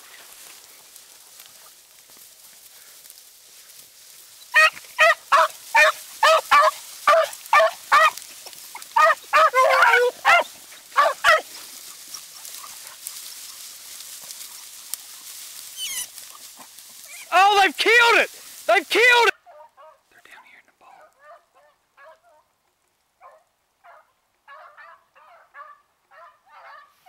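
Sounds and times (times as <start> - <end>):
dog baying: 4.6 - 11.6.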